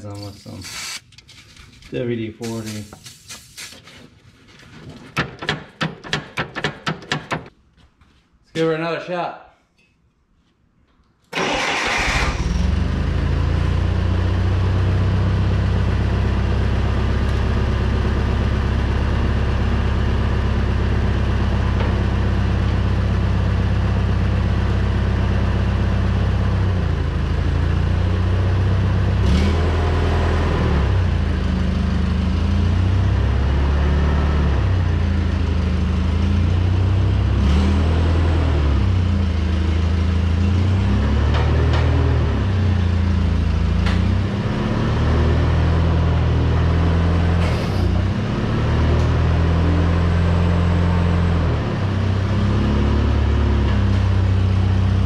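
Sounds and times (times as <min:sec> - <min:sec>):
forklift engine starting and idling: 0:11.3 - 0:55.0.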